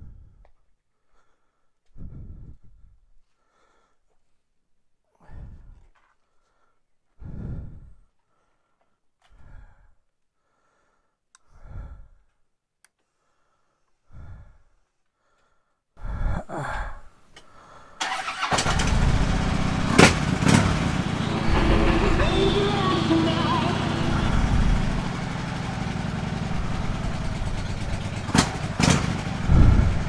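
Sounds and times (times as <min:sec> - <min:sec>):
motorcycle engine running: 0:18.4 - 0:30.0.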